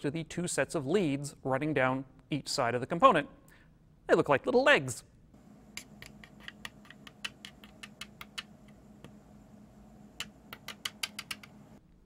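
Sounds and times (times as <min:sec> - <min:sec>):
chip pins tapping on paper: 0:05.7 - 0:09.2, 0:10.2 - 0:11.8.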